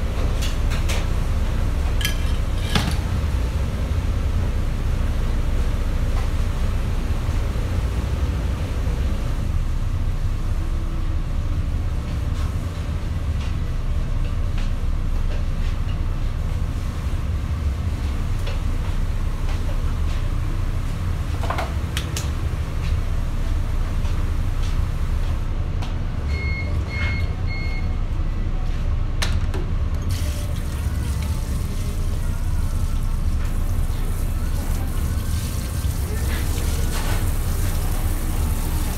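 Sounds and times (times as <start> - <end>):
kitchen equipment rumbling: 1.8 - 3.3.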